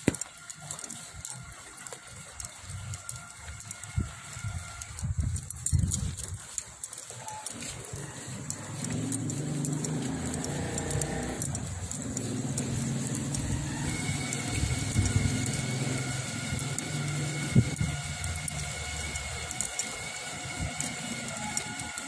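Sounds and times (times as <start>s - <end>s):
vehicle engine idling: 7.2s - 22.0s.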